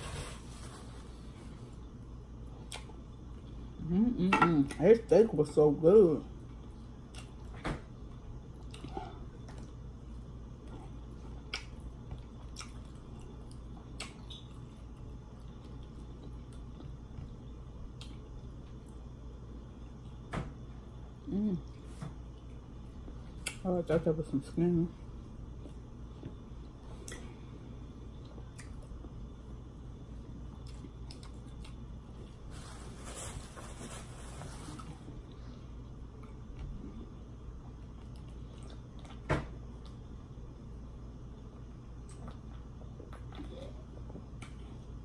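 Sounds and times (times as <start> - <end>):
steady low hum: 0.0 - 45.0
person chewing with wet mouth sounds: 6.4 - 19.1, 25.4 - 32.4, 34.8 - 40.2, 41.3 - 45.0.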